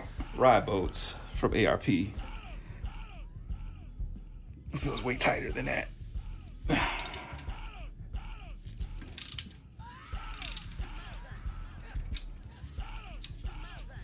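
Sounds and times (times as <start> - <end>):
hand ratchet clicking: 7.0 - 7.5, 9.0 - 9.6, 10.4 - 10.8, 12.1 - 13.9.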